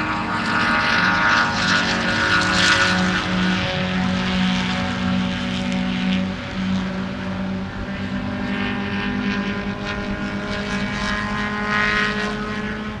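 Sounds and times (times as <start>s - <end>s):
car engine at high revs: 0.0s - 13.0s.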